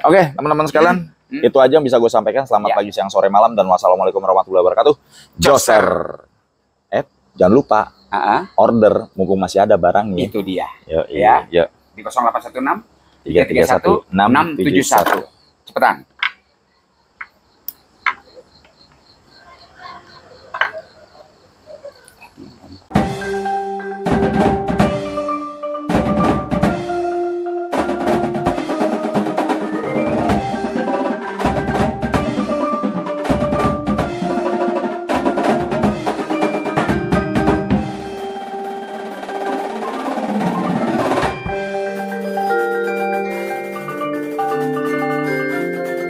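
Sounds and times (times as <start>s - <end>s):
drums: 22.4s - 46.0s
mallet percussion melody: 22.9s - 46.0s.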